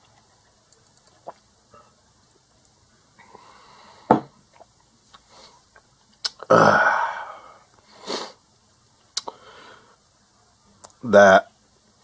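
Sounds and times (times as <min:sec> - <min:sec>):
person breathing: 0:03.2 - 0:04.2, 0:06.8 - 0:08.4, 0:09.3 - 0:10.0
glass set down on table: 0:04.1 - 0:04.3
loud burp: 0:06.4 - 0:07.3.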